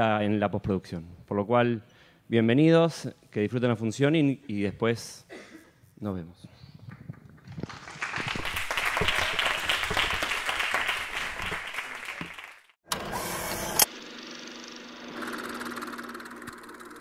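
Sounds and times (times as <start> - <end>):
audience applauding: 7.4 - 12.8.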